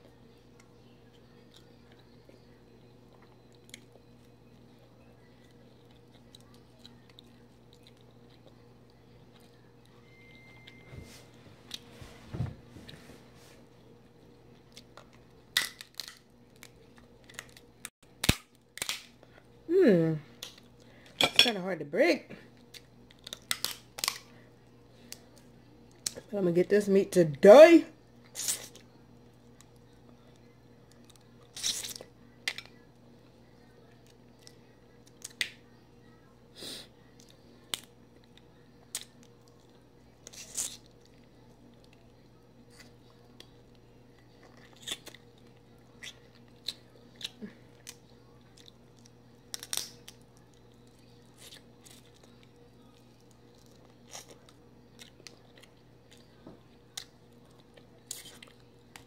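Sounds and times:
chewing: 0:00.0 - 0:09.7, 0:37.2 - 0:59.0
faint steady hum: 0:00.0 - 0:59.0
crab shell cracking: 0:15.5 - 0:16.7, 0:18.2 - 0:19.2, 0:49.0 - 0:50.2.

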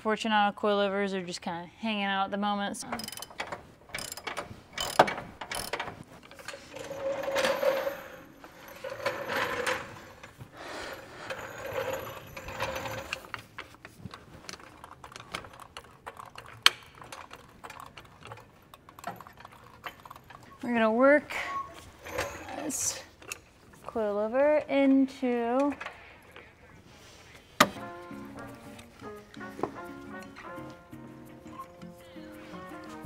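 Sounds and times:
metal clicks and knocks: 0:02.8 - 0:07.8, 0:12.2 - 0:20.8.

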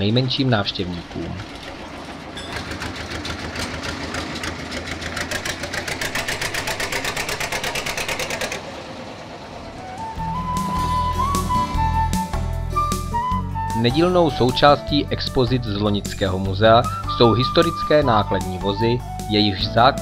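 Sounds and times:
diesel locomotive chugging: 0:00.0 - 0:20.0
music: 0:09.8 - 0:20.0.

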